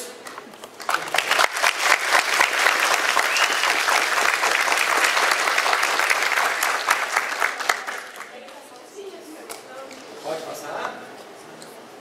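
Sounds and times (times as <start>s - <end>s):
audience applauding: 0.7s - 8.6s.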